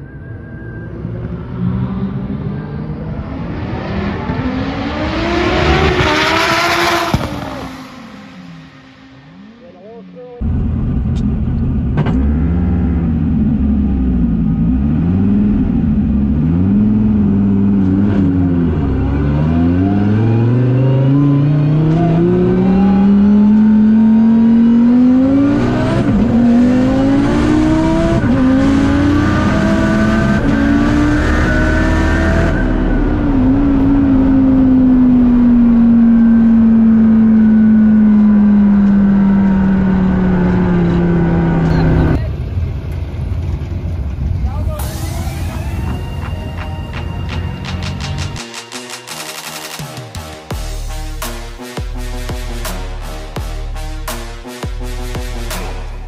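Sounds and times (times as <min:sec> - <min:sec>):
car engine revving at full throttle: 0:00.9 - 0:42.7.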